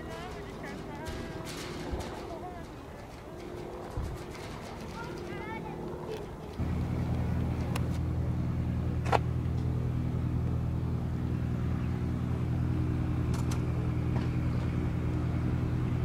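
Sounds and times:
propeller plane engine: 0.0 - 16.0.

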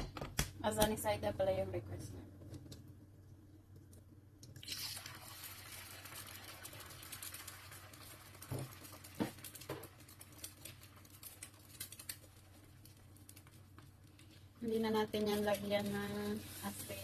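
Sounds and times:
oil spattering crackles: 4.4 - 17.0
egg sizzling in oil: 4.5 - 17.0.

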